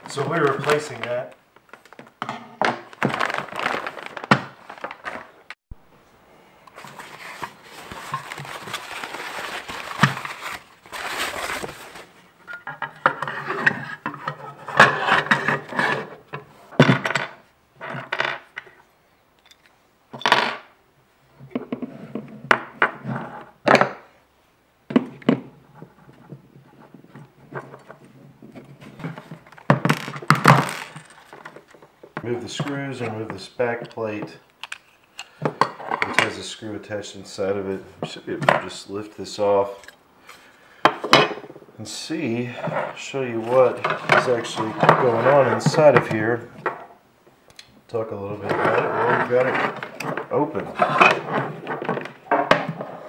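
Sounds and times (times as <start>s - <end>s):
plastic bag crinkling: 2.9s - 5.3s, 6.8s - 12.3s, 29.9s - 31.7s.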